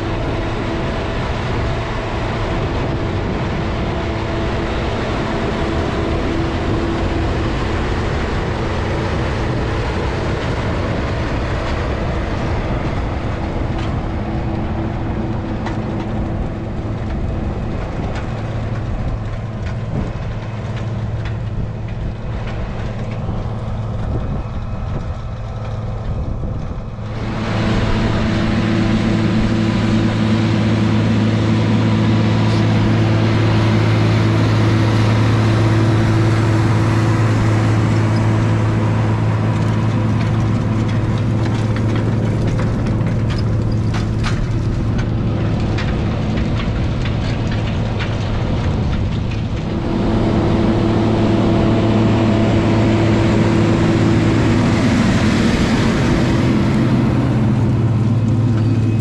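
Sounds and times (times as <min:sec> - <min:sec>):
tractor diesel engine under load: 0:00.0 - 0:59.0
clicks and rattles: 0:39.3 - 0:49.8.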